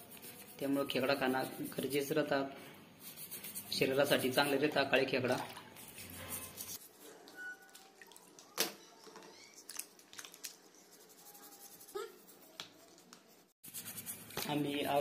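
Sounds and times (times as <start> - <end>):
toothbrush scrubbing crab shell: 5.7 - 7.0, 9.5 - 15.0.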